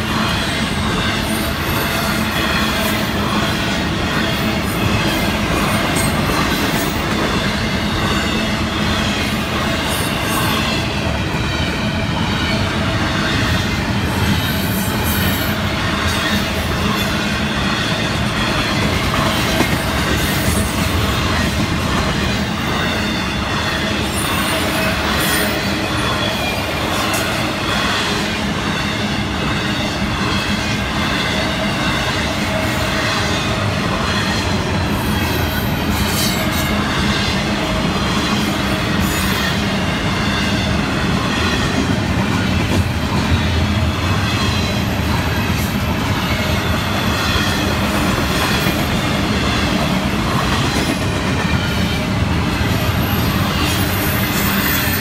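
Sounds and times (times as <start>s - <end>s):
freight train wheels clattering on rails: 0.0s - 55.0s.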